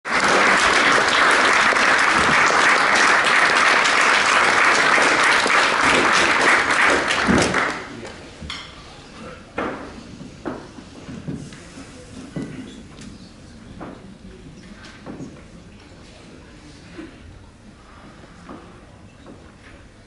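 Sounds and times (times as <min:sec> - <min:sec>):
audience applauding: 0:00.1 - 0:08.0.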